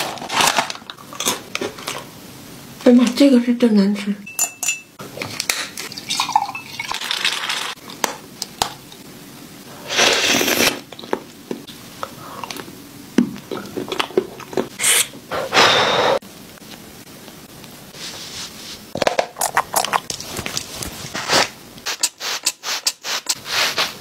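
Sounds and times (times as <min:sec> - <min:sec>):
liquid pouring into a mug: 0:05.9 - 0:07.7.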